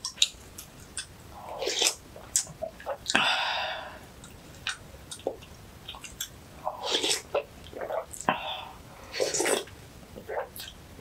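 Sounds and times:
chewing: 0.0s - 3.2s, 4.2s - 8.3s, 9.2s - 10.8s
wet mouth clicks: 0.0s - 3.2s, 4.2s - 8.3s
slurping soup from a spoon: 6.7s - 8.2s, 9.1s - 9.7s.

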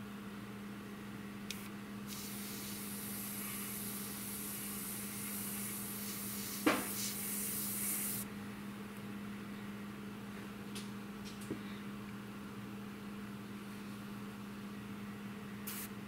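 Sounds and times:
airbrush spraying hiss: 2.1s - 8.3s, 15.7s - 15.9s
sharp tap: 6.6s - 6.9s.

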